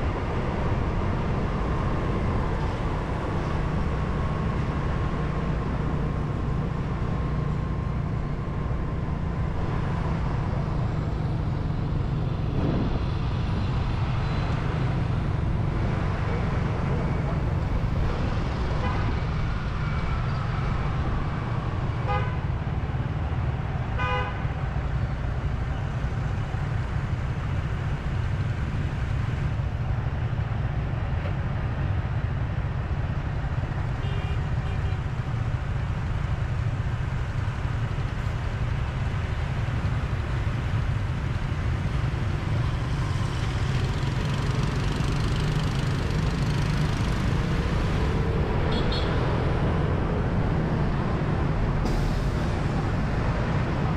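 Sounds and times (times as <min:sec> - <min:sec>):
low rumble of traffic: 0:00.0 - 0:53.9
vehicle horn toots: 0:24.0 - 0:24.4.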